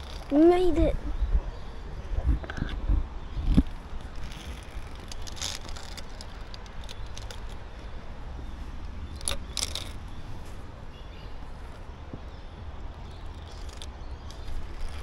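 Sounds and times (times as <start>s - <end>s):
low rumble on microphone: 0.8s - 6.2s
metal clips clinking: 9.2s - 10.0s.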